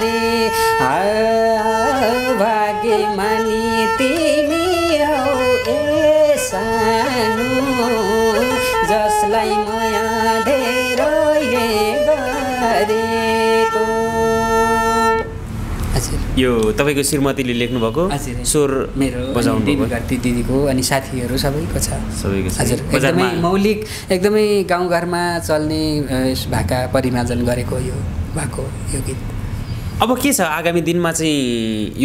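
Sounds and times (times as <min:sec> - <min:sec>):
bowed fiddle: 0:00.0 - 0:15.4.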